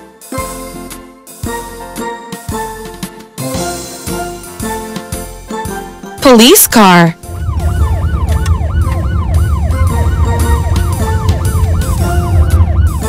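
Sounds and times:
police siren yelping: 6.2s - 13.0s
steady low rumble: 7.2s - 13.0s.

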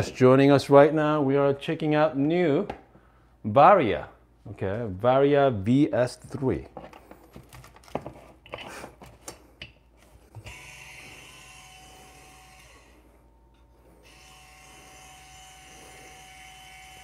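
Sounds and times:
coffee grinder motor humming: 10.3s - 13.1s, 13.9s - 17.0s.

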